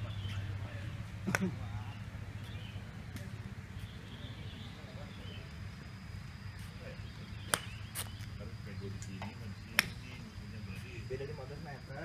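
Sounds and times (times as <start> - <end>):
outdoor background: 0.0 - 12.0
golf club striking ball: 7.4 - 8.1.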